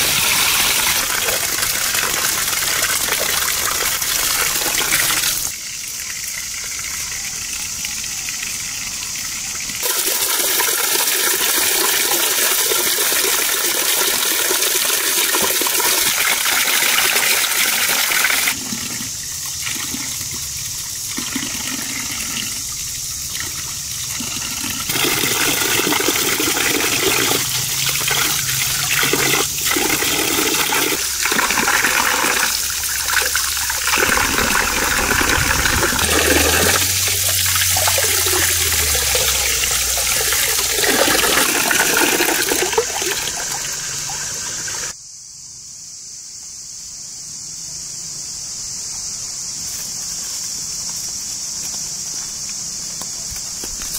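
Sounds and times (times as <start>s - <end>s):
water pouring into a basin: 0.0s - 45.0s
hands washing vegetables in water: 23.3s - 44.4s.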